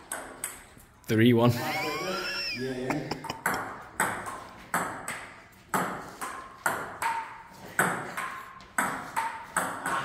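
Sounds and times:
ball bouncing on table: 0:00.0 - 0:00.7, 0:03.2 - 0:10.0
ball clicking off bats: 0:03.2 - 0:10.0.

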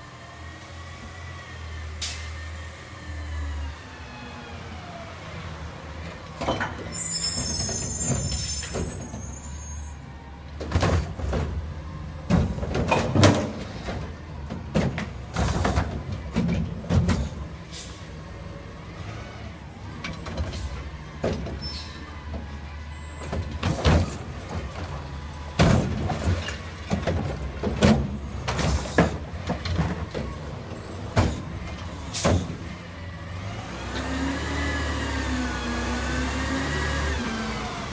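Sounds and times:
diesel engine rumbling: 0:00.0 - 0:37.9
truck arm clanking: 0:10.6 - 0:17.5.

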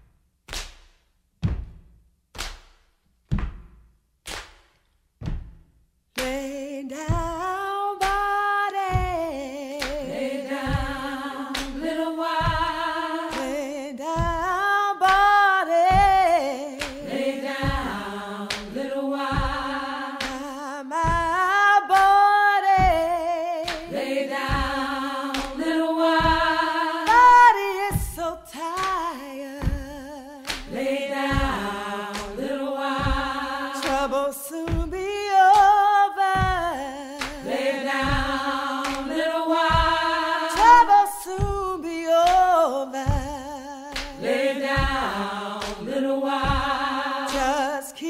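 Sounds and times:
low drum beat: 0:01.4 - 0:02.0, 0:03.3 - 0:03.8, 0:05.2 - 0:05.7, 0:07.1 - 0:07.5, 0:08.9 - 0:14.6, 0:15.9 - 0:16.4, 0:17.0 - 0:21.4, 0:22.8 - 0:23.2, 0:23.8 - 0:28.3, 0:28.9 - 0:35.7, 0:36.4 - 0:42.5, 0:43.1 - 0:47.6
wordless singing with vibrato: 0:06.2 - 0:48.0.

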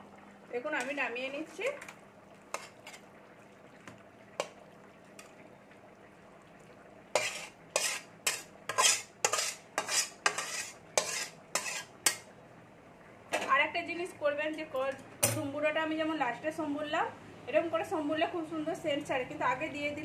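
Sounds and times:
metal spatula scraping metal pan: 0:02.5 - 0:03.0, 0:07.2 - 0:12.2.

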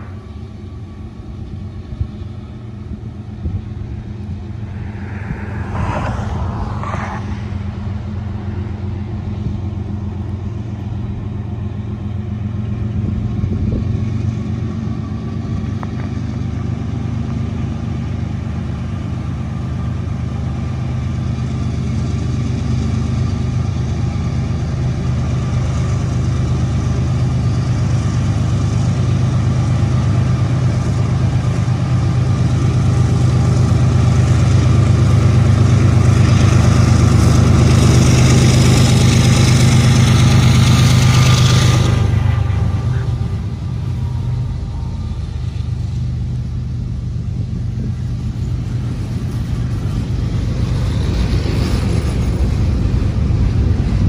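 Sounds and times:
diesel locomotive engine droning: 0:00.0 - 0:54.0
high rushing noise: 0:03.6 - 0:09.6.

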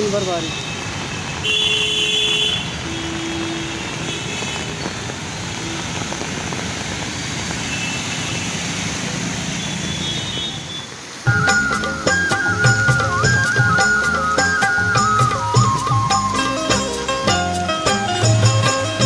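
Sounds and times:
cars driving through water: 0:00.0 - 0:14.4
heavy rain: 0:00.0 - 0:19.0
music with flute melody: 0:11.3 - 0:19.0.

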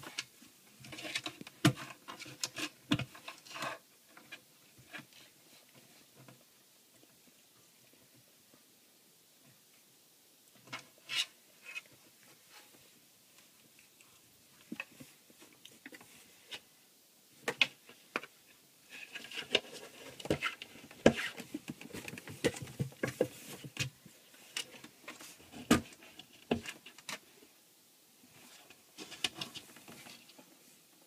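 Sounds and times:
rustling: 0:09.4 - 0:27.6, 0:28.2 - 0:31.0.

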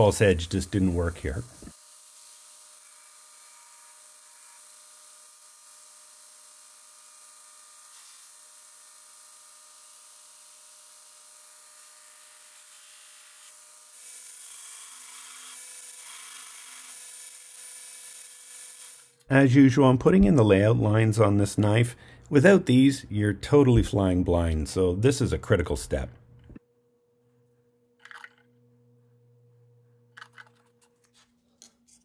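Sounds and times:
belt grinder hissing: 0:00.0 - 0:08.8, 0:12.5 - 0:19.3.

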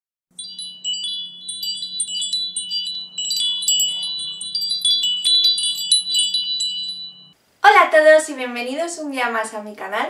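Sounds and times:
high tinkling chimes: 0:00.3 - 0:07.4
low steady hum: 0:00.4 - 0:08.8.

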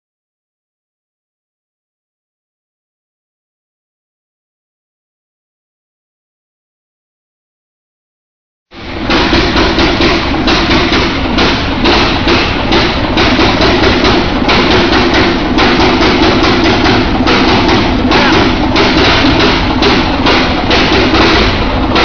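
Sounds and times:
gas engine compressor pulsing: 0:08.7 - 0:22.0.

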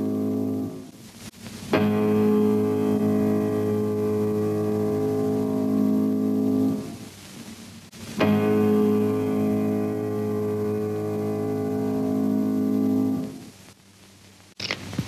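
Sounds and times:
deep piano chords: 0:01.9 - 0:07.0, 0:08.2 - 0:13.4.

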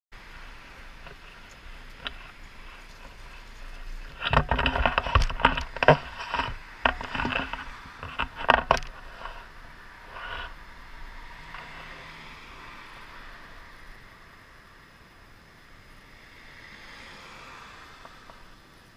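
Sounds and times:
faint road noise hiss: 0:00.1 - 0:18.9
camera pole knocking and scraping: 0:03.0 - 0:09.5.

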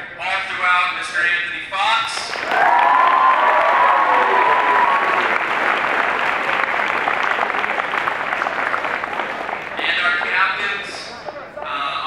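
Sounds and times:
crowd applauding: 0:02.2 - 0:11.6
person cheering: 0:02.5 - 0:05.3.

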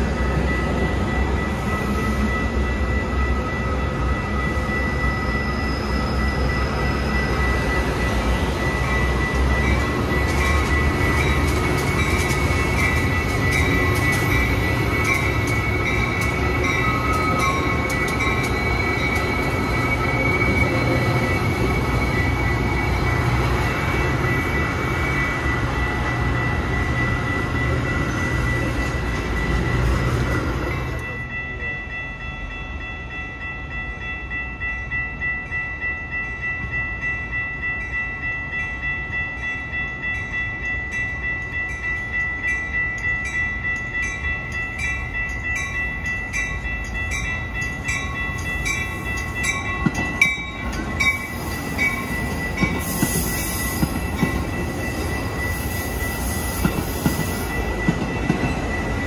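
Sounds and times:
train rumble and rail noise: 0:00.0 - 0:59.0
steady high-pitched tone: 0:39.6 - 0:59.0.

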